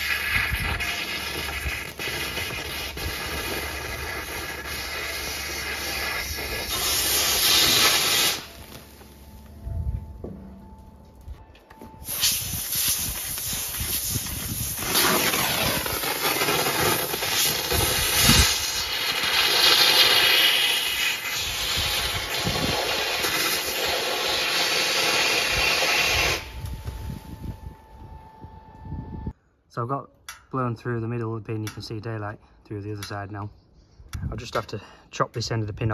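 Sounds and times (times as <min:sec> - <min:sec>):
thermal lance rushing hiss: 0:00.0 - 0:09.1, 0:12.0 - 0:27.4.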